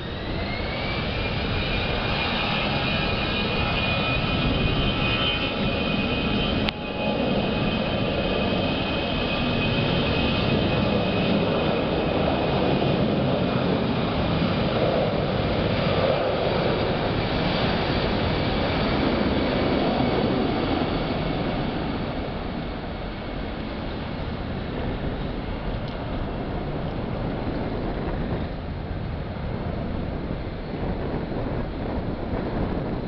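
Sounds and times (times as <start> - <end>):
jet engines roaring with whine: 0.0 - 33.0.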